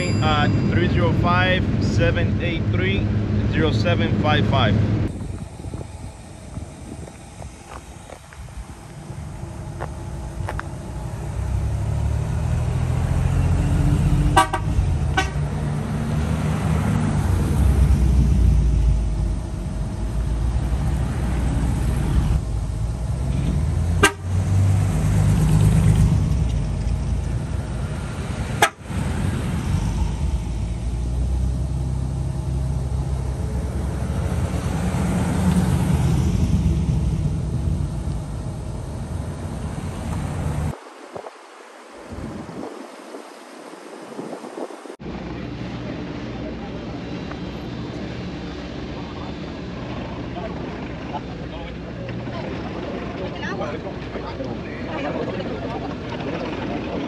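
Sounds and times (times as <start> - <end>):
cars driving past: 0.0 - 57.0
car horn toots: 14.3 - 15.5, 24.0 - 24.4, 28.6 - 28.8.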